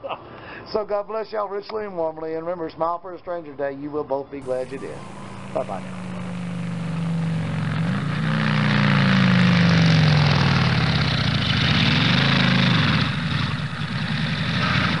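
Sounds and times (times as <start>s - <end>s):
engine revving: 4.4s - 15.0s.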